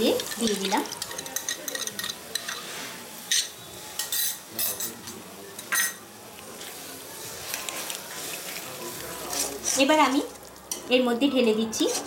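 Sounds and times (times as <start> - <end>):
spice paste sizzling in pan: 0.0 - 4.6, 6.2 - 11.0.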